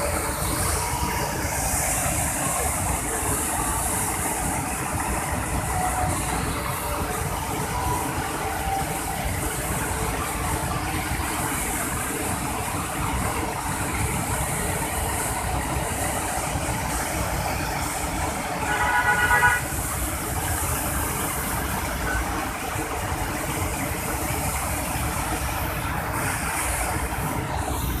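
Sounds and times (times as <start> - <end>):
river rapids rushing: 0.0 - 28.0
horn sounding: 18.6 - 19.7.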